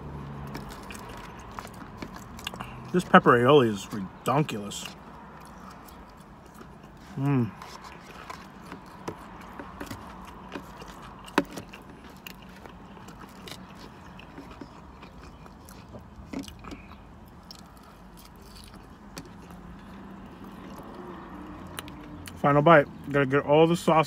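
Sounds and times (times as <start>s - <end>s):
person chewing food: 0.0s - 22.4s.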